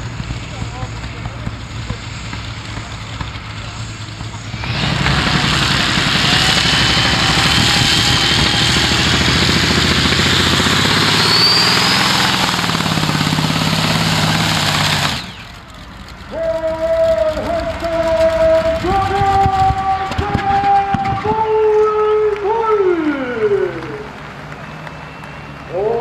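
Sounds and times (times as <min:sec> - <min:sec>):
tractor engine at full power: 0:00.0 - 0:26.0
thin rising whine: 0:04.4 - 0:20.0.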